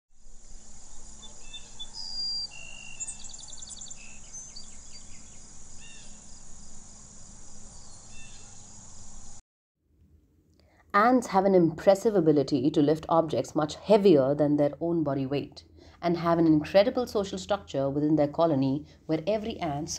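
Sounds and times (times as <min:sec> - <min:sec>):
insects droning: 0:00.2 - 0:09.4
bird trill: 0:01.0 - 0:06.5, 0:07.7 - 0:08.8
bird chirps and whistles: 0:01.2 - 0:06.1.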